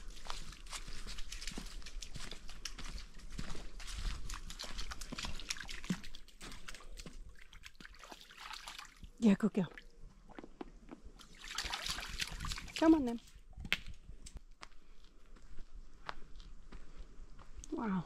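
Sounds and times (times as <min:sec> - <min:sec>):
footsteps on leaves: 0:00.0 - 0:06.7.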